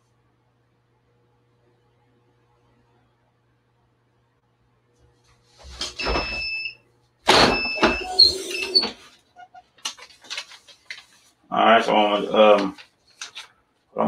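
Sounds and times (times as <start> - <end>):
heat press clunk and rattle: 7.3 - 8.2
paper tapping and rustling: 9.8 - 11.4, 12.3 - 13.6.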